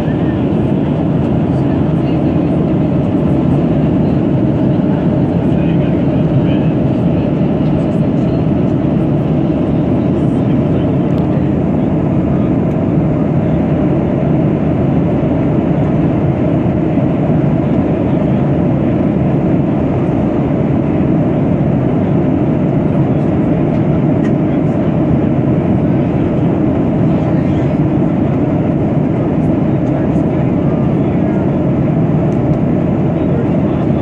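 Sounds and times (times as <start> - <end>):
jet airliner cabin roar: 0.0 - 34.0.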